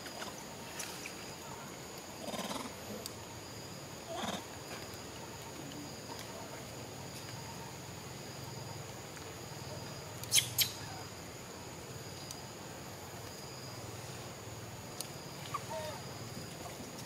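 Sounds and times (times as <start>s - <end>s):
high insect drone: 0.0s - 17.0s
monkey squeaks: 10.3s - 10.8s.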